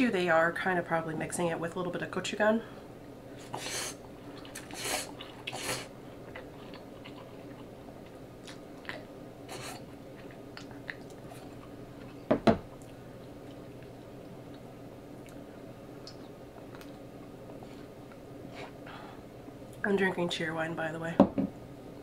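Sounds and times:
noodles slurping: 3.4s - 7.8s
wet chewing: 3.4s - 18.2s.

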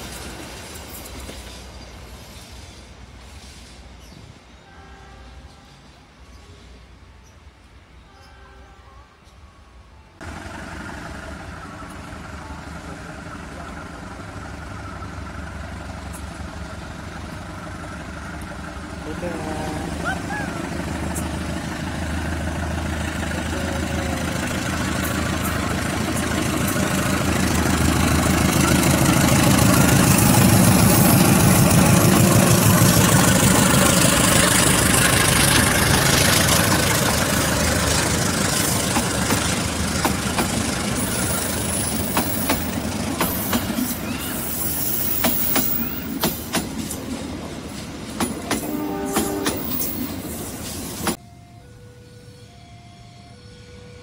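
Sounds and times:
locomotive engine drone: 9.1s - 54.0s
train wheels clacking on rail joints: 24.8s - 44.1s, 45.0s - 49.9s.

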